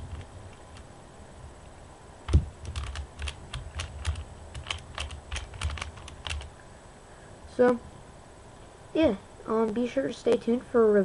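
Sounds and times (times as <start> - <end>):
twisty puzzle plastic clicks: 2.3 - 6.5.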